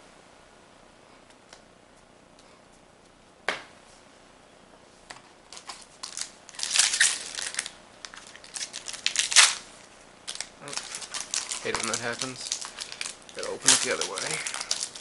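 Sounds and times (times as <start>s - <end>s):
foil wrapper crinkling and tearing: 5.6s - 15.0s.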